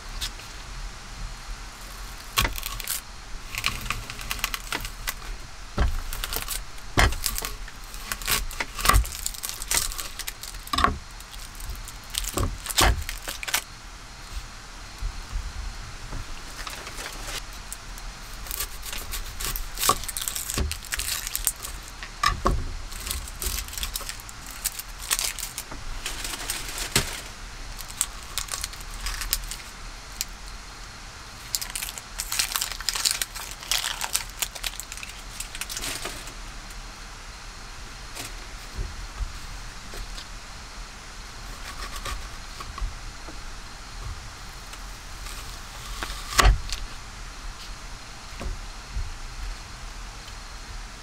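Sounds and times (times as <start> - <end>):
onion skin crackling and rustling: 1.7 - 14.5, 16.3 - 30.5, 31.2 - 36.8, 41.4 - 47.8.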